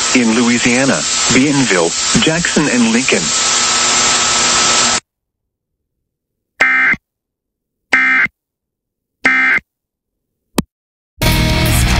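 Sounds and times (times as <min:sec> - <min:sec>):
digital data burst screeches: 0:00.0 - 0:05.0, 0:06.6 - 0:07.0, 0:08.0 - 0:08.3, 0:09.3 - 0:09.6.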